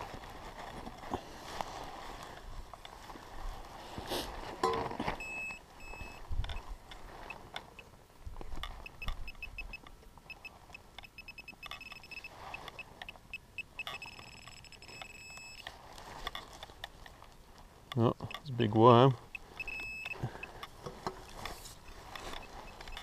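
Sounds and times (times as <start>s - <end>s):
metal detector beeping: 4.6s - 7.9s, 8.6s - 15.7s, 18.0s - 20.6s, 21.2s - 23.0s.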